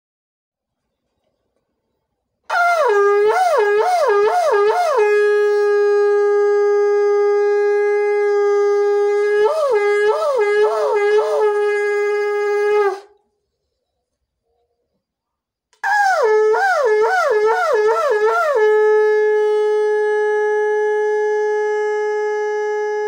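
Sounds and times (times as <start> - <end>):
conch shell blown: 2.5 - 13.2, 15.8 - 23.0.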